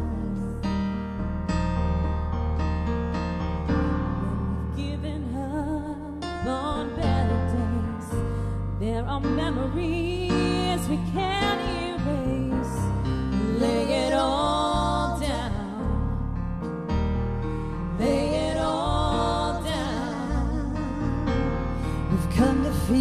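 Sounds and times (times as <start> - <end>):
electric keyboard chords: 0.0 - 23.0
woman singing slow melody: 4.2 - 16.1, 22.0 - 23.0.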